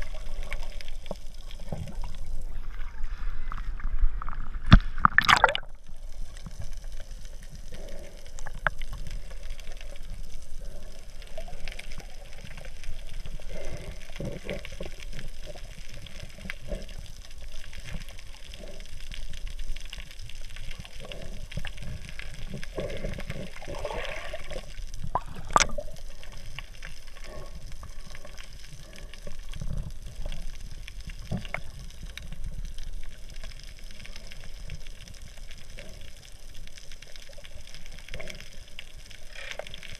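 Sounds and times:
underwater sloshing and gurgling: 0:00.0 - 0:39.9
splash: 0:04.7 - 0:05.7.

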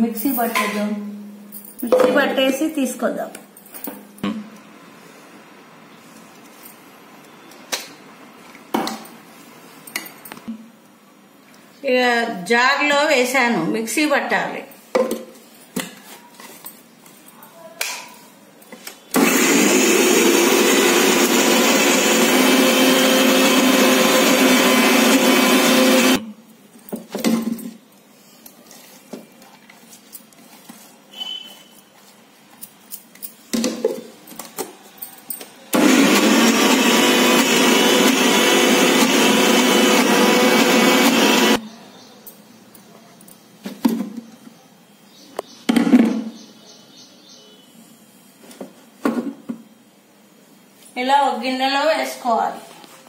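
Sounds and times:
mixer grinder running: 0:19.2 - 0:26.2, 0:35.7 - 0:41.6.

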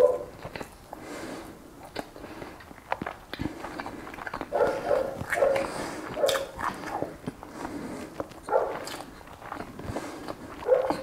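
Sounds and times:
dog barking: 0:00.0 - 0:00.3, 0:04.5 - 0:06.6, 0:08.5 - 0:08.9, 0:10.6 - 0:11.0.

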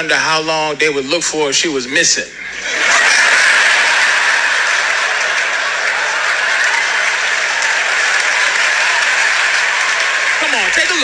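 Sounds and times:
audience applauding: 0:02.8 - 0:11.0.

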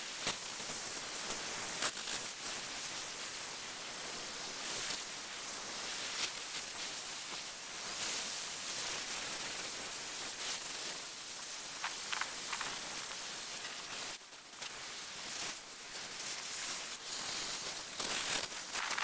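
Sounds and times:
sandblaster hiss of air and grit: 0:00.0 - 0:19.0.

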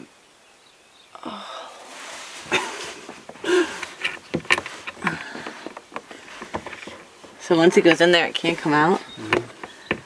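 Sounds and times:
person breathing and laughing: 0:02.3 - 0:04.0
plastic pipe fittings clicking: 0:03.2 - 0:07.0.

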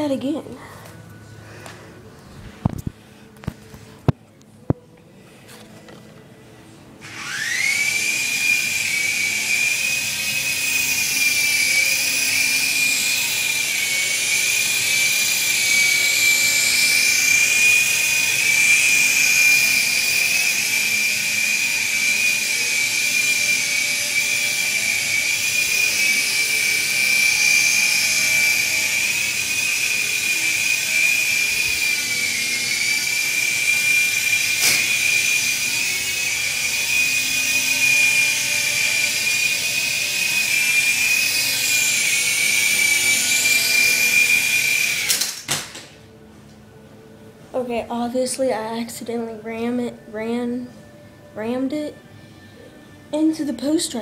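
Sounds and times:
toy helicopter motor whine: 0:07.0 - 0:46.0.

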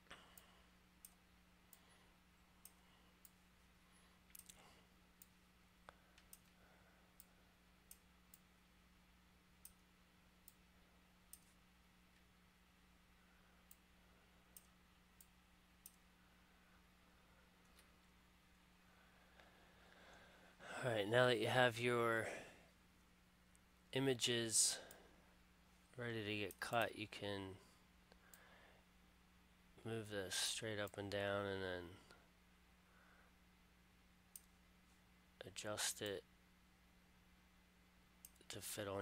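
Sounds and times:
steady low hum: 0:00.0 - 0:39.0
computer mouse clicking: 0:04.2 - 0:04.6, 0:05.2 - 0:06.6, 0:11.3 - 0:12.3, 0:34.3 - 0:34.6.

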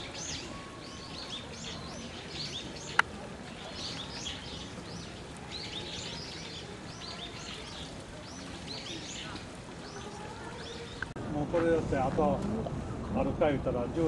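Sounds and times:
small birds chirping: 0:00.0 - 0:11.2.

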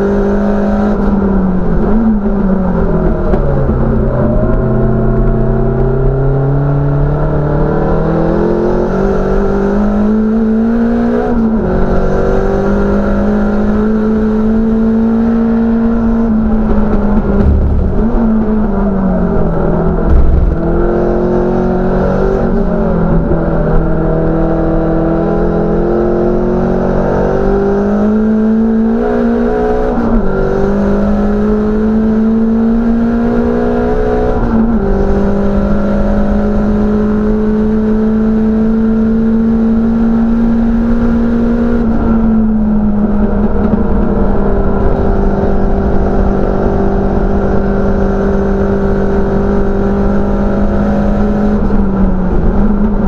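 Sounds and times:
car engine under hard load: 0:00.0 - 0:53.0
loud thump: 0:16.8 - 0:18.8, 0:19.9 - 0:20.9.

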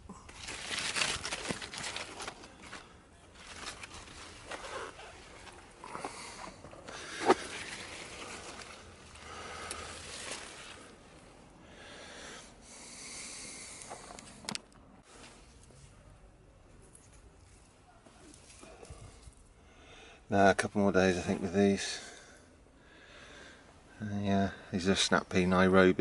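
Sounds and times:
leaves and stems rustling: 0:00.0 - 0:11.5, 0:13.8 - 0:19.5.

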